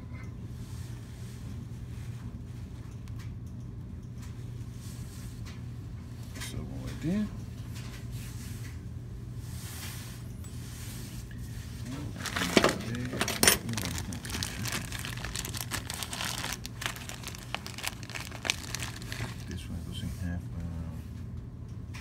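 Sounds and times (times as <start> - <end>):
steady low hum: 0.0 - 22.0
clothing rustling: 12.1 - 19.5.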